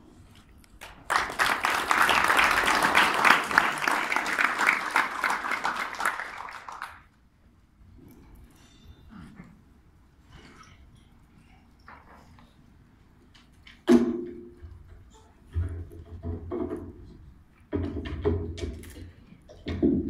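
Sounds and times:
audience applauding: 0.8 - 7.1.

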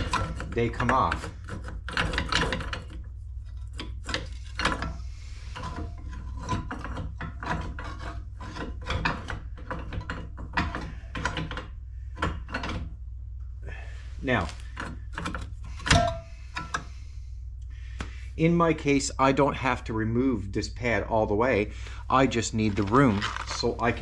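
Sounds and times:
metal scraping and clanking: 0.0 - 12.8
steady low hum: 0.0 - 24.0.

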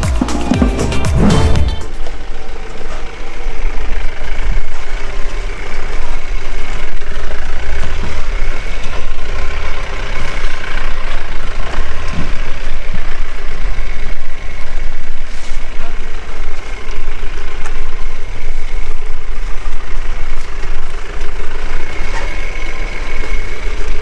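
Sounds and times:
music: 0.0 - 2.0
diesel engine low rumble: 0.0 - 24.0.

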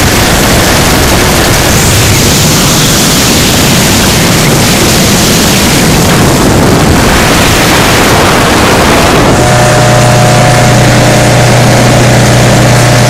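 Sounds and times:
motorboat engine running: 0.0 - 13.0
rush of wind and water: 0.0 - 13.0.

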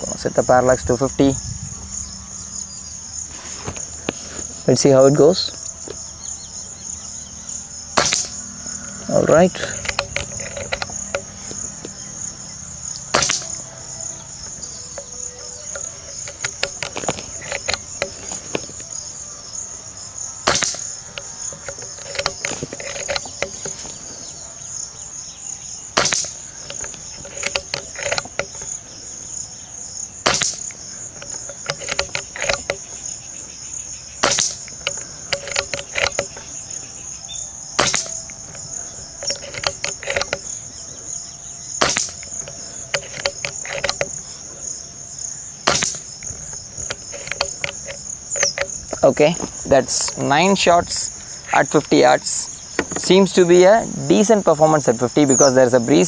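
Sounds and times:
crickets chirping: 0.0 - 56.0
air rifle shots: 8.0 - 8.5, 13.1 - 13.7, 20.4 - 24.4, 25.9 - 28.8, 30.2 - 33.1, 34.2 - 36.6, 37.8 - 38.6, 41.8 - 44.2, 45.6 - 49.0.

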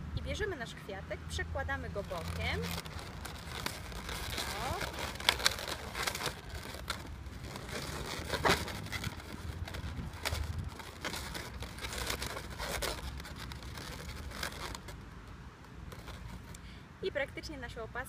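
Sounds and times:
steady low rumble: 1.5 - 14.5
balloons rubbing and squeaking: 1.9 - 15.0, 15.8 - 16.6.

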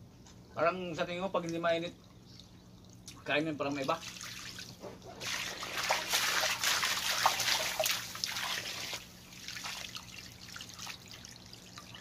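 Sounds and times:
water dripping and trickling: 1.4 - 12.0
water splashing into plastic crate: 3.8 - 11.4.

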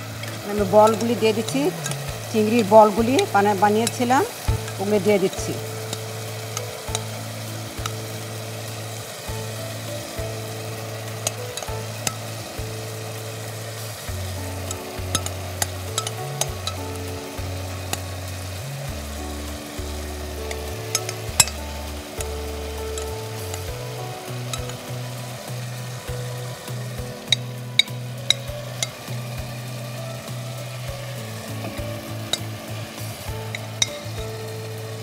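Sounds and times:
food sizzling in a pot: 0.0 - 35.0
soft background music: 0.0 - 35.0
utensils clicking against pot: 0.2 - 7.2, 14.6 - 16.8, 20.4 - 21.6, 22.2 - 23.7, 24.3 - 25.8, 26.7 - 29.1, 31.6 - 32.6, 33.2 - 34.3.

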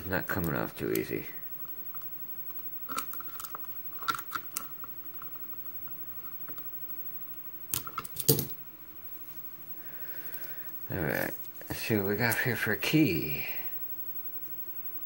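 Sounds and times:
crackling and clicking: 0.0 - 7.1.

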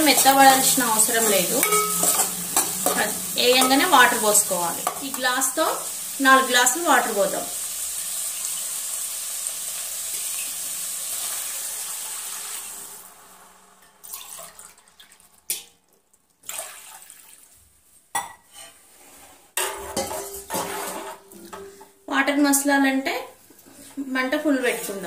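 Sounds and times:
water hissing in hot oil: 0.0 - 14.6.

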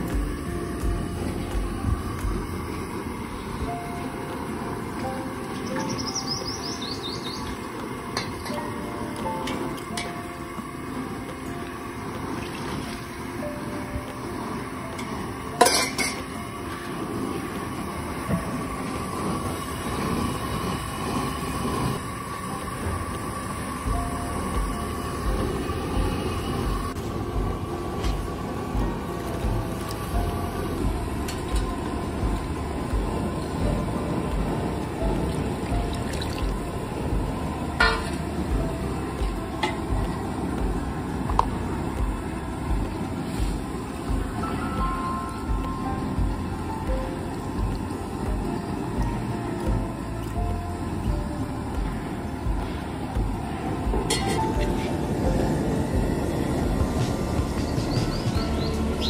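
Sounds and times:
background music with low beat: 0.0 - 59.0
gas burner rushing: 0.0 - 59.0
steel ladle clanking on pot: 15.0 - 16.3, 37.8 - 38.2, 54.1 - 54.6.

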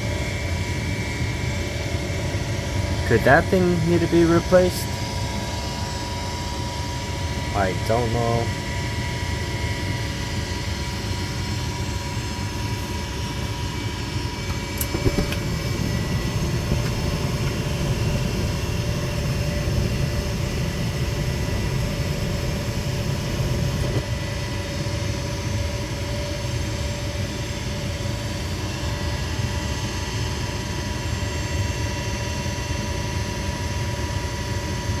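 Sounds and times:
furnace inducer motor hum: 0.0 - 30.4
burners rumbling: 14.4 - 24.0.

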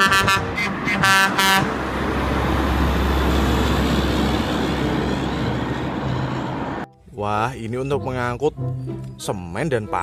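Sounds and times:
horn toots: 0.0 - 1.8
truck diesel engine rumble: 0.0 - 9.2.

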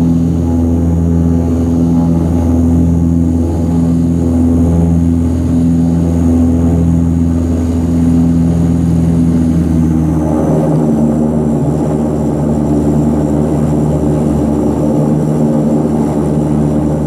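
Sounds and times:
turboprop engines droning: 0.0 - 17.0.

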